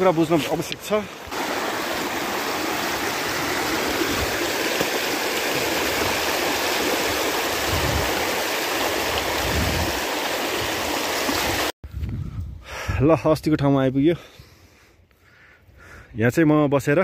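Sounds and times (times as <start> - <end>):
stream water rushing: 0.0 - 11.8.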